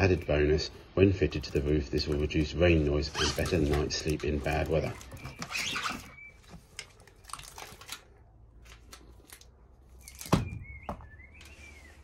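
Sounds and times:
foil sheet crinkling: 1.5s - 9.5s.

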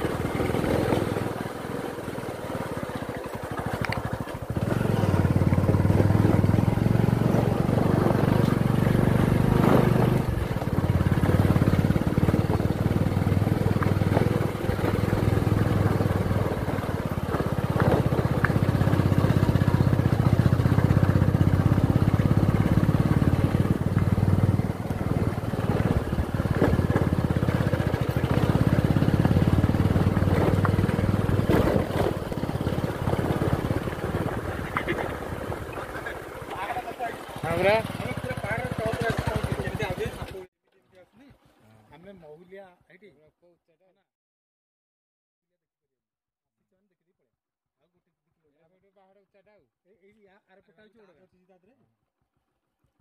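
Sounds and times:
vehicle engine and road rumble: 0.0s - 40.5s
vehicle knocking on bumps: 5.2s - 36.6s.

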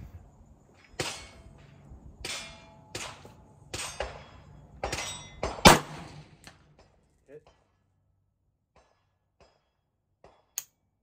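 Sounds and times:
quieter gunshots: 2.2s - 6.5s
loud sharp rifle shot: 4.9s - 6.3s.

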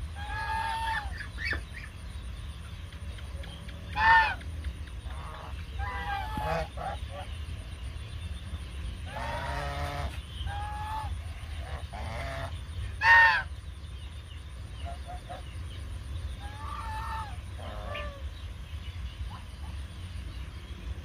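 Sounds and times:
geese honking: 0.0s - 1.9s, 3.9s - 4.4s, 5.0s - 7.3s, 9.0s - 13.6s, 16.4s - 18.4s.

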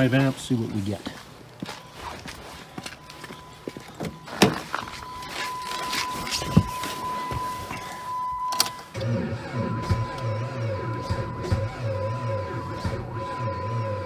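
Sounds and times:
footsteps on frozen driveway: 0.0s - 8.0s.

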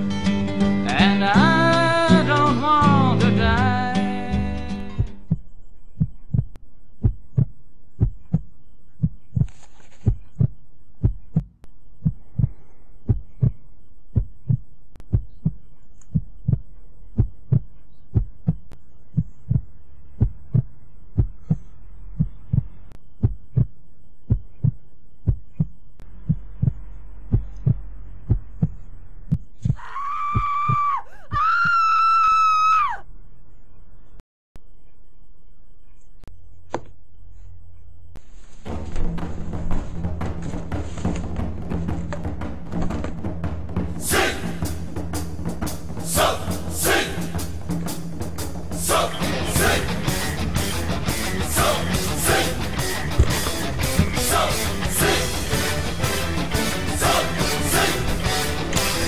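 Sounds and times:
heartbeat thumps: 4.9s - 31.5s, 38.7s - 59.0s
faint hum: 11.6s - 38.6s.

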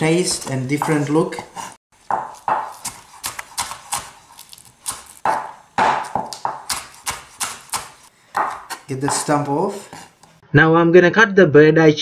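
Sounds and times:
knife chopping on wooden board: 2.0s - 10.2s.

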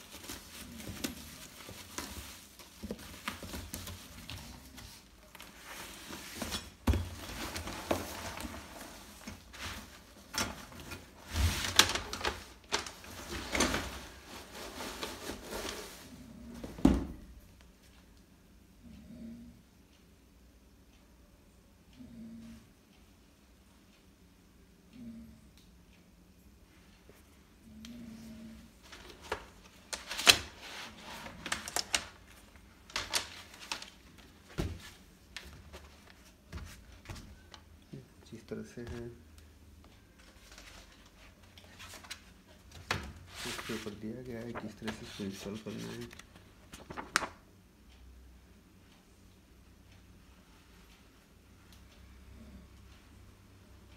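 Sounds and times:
cardboard and plastic scraping: 0.0s - 16.9s, 41.7s - 47.3s
thump on tiled floor: 16.8s - 17.2s.

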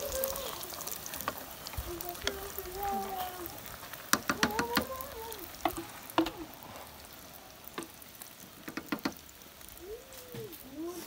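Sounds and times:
fish sizzling in oil: 0.0s - 11.0s
wooden spoon knocking on pot: 4.1s - 4.9s.

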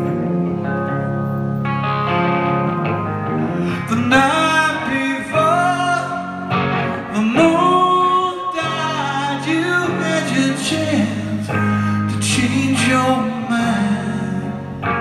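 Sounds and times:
electric guitar chords: 0.0s - 15.0s
man singing: 3.7s - 14.8s.

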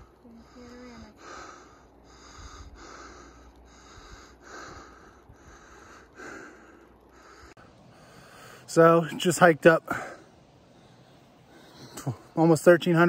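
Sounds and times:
person panting heavily: 0.3s - 8.7s.

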